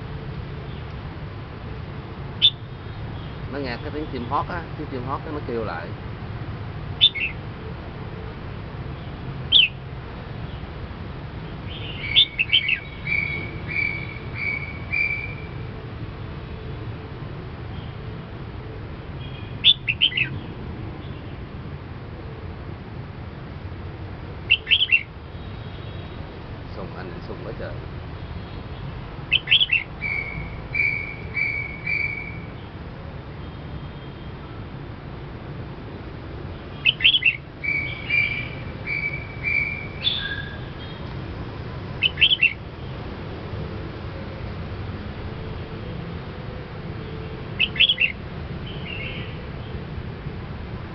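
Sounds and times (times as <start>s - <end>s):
bird chirping and whistling: 2.4s - 2.6s, 7.0s - 7.4s, 9.5s - 9.8s, 11.7s - 15.5s, 19.3s - 20.4s, 24.5s - 25.1s, 29.3s - 32.5s, 36.8s - 40.7s, 42.0s - 42.6s, 47.6s - 49.4s.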